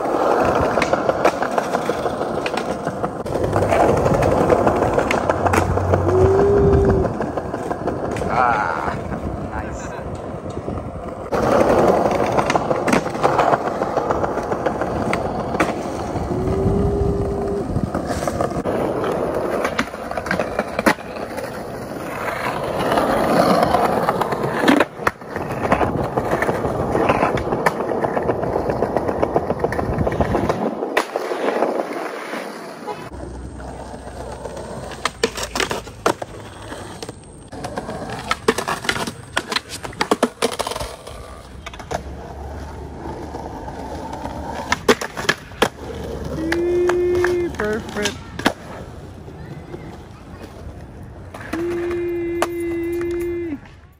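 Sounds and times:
skateboard clacks: 0.0s - 53.9s
skateboard wheels rolling on tiles: 0.0s - 53.9s.

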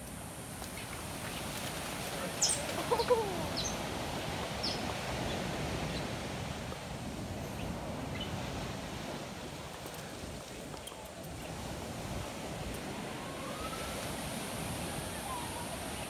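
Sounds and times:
steady background hiss: 0.0s - 16.0s
lower falling animal call: 2.4s - 3.8s.

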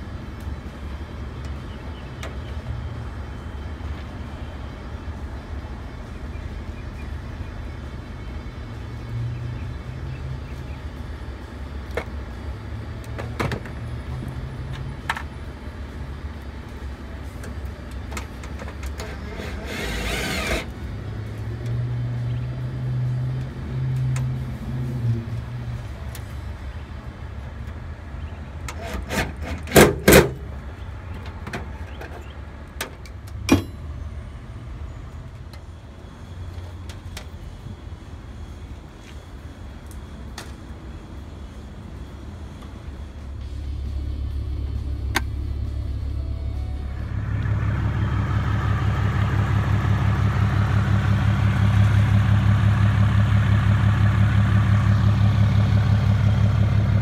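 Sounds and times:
steady low hum: 33.4s - 57.0s.

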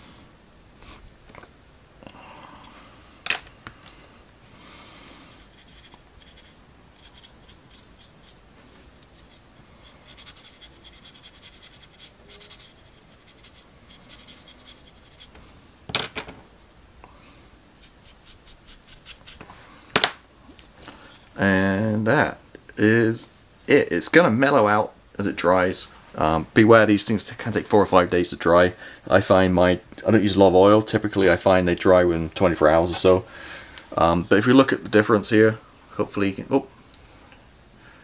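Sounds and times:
paintbrush scratching strokes: 5.3s - 15.4s, 17.8s - 19.6s, 20.8s - 21.4s.

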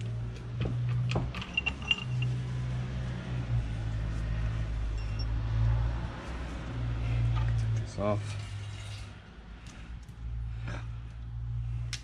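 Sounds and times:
tools clicking and clinking: 0.8s - 2.4s.

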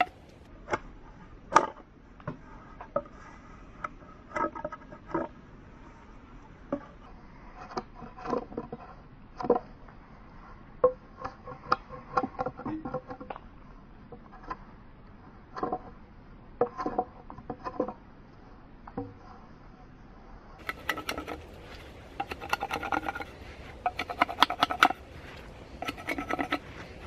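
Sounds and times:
knife scraping bark off wood: 20.6s - 27.0s.

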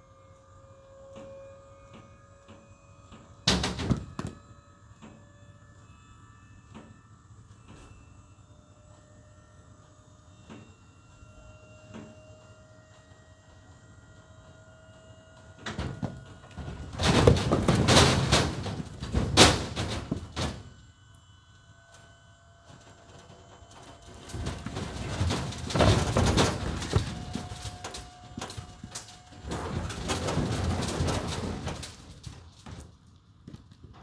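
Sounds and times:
faint steady whine: 0.0s - 34.0s
firewood tumbling onto pavement: 16.0s - 20.5s, 24.2s - 34.0s.

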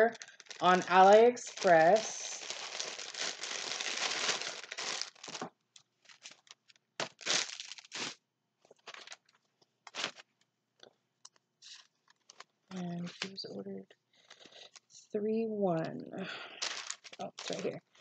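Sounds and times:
plastic packaging crinkling: 0.0s - 10.4s, 11.6s - 13.4s, 14.2s - 14.9s, 16.6s - 18.0s.

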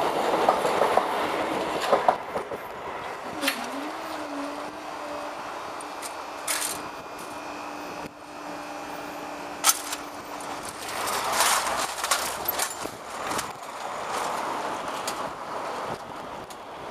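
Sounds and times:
barrier drive mechanism humming: 3.2s - 15.0s.

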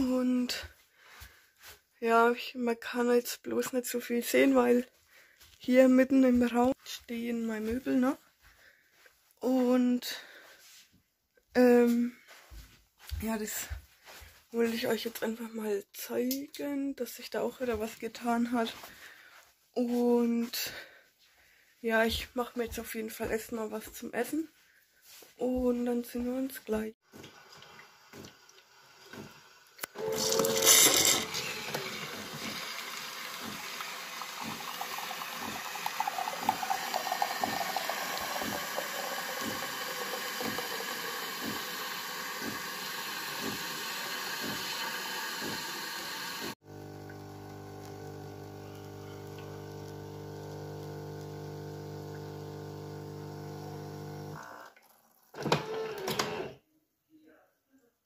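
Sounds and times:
coffee machine frothing milk: 27.2s - 54.8s, 55.4s - 56.5s
coffee machine humming: 27.2s - 54.8s, 55.4s - 56.5s.

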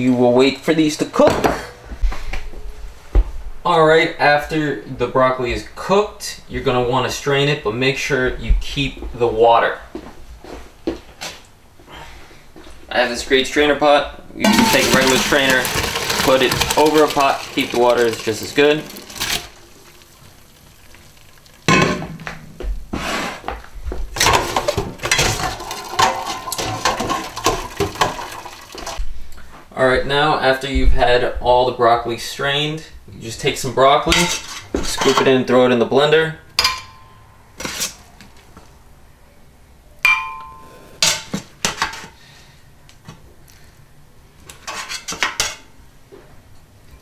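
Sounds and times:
metal pots clanking and rattling: 14.4s - 22.1s, 24.2s - 29.0s.

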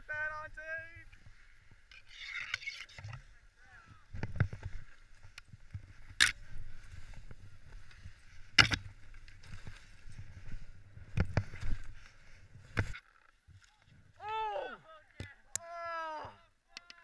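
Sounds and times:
skis knocking on branches: 8.0s - 9.7s.

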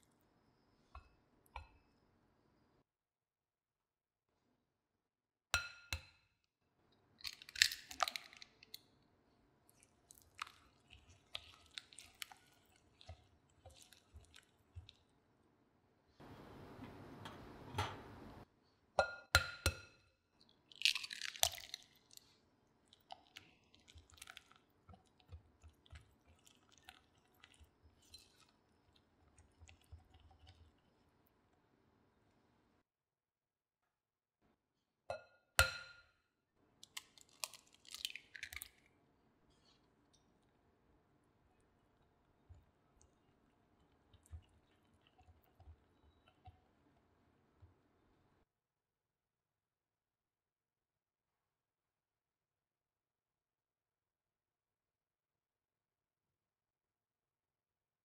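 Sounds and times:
whisk stirring wet batter: 9.7s - 15.2s, 22.9s - 31.2s.

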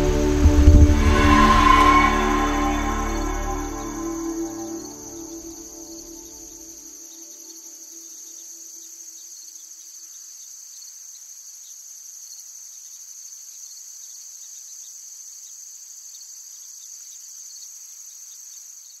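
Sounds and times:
low music notes: 0.0s - 6.6s
insects chirring: 0.0s - 19.0s.

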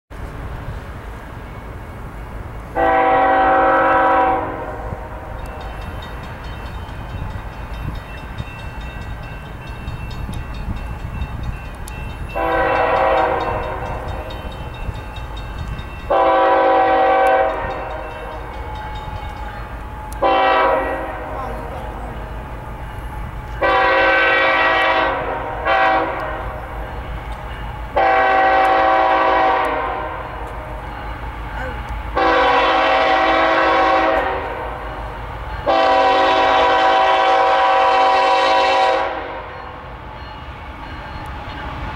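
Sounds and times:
train rumble: 0.1s - 41.9s
locomotive air horn blasts: 2.7s - 5.3s, 12.4s - 14.2s, 16.1s - 18.0s, 19.6s - 21.8s, 23.6s - 26.6s, 28.0s - 30.2s, 31.6s - 34.8s, 35.6s - 39.6s.

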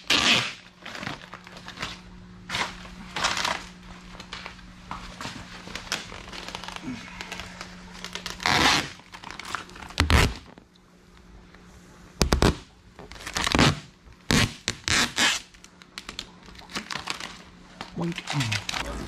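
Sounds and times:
vinyl film ripping off: 5.7s - 10.6s, 12.2s - 17.4s.

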